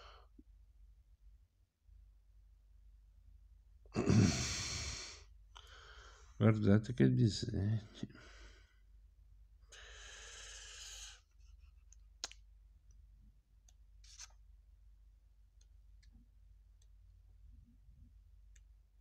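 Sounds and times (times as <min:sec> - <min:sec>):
comic book pages turning: 0:14.0 - 0:14.3.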